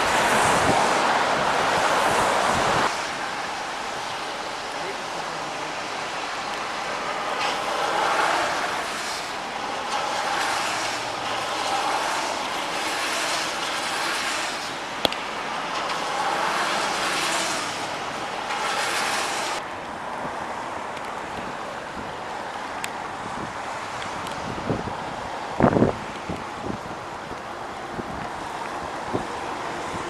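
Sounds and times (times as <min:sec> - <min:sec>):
tyres hissing on wet road: 0:00.0 - 0:30.0.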